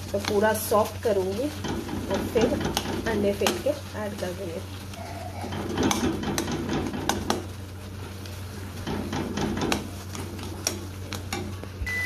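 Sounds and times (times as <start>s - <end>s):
masala sizzling softly: 0.0s - 12.0s
metal spatula scraping a pan: 1.6s - 8.1s, 8.7s - 11.6s.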